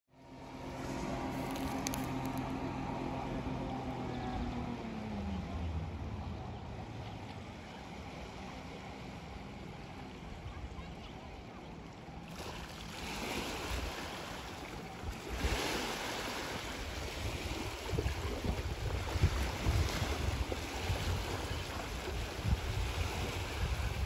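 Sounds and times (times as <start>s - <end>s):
distant outboard motor: 0.1s - 24.0s
boat wake lapping against bank: 0.3s - 24.0s
wind buffeting microphone: 13.6s - 24.0s.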